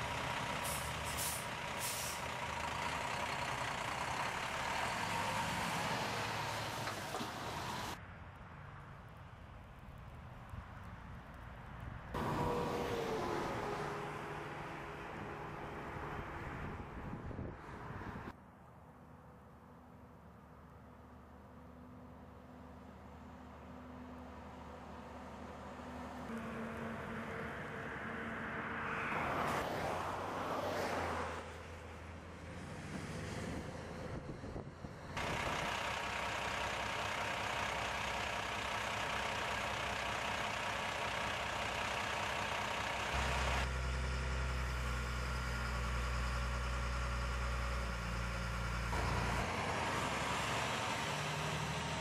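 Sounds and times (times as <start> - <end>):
diesel engine humming: 0.0 - 8.0, 12.2 - 52.0
truck driving on slushy road: 0.0 - 52.0
tyre and spray hiss: 0.6 - 2.2.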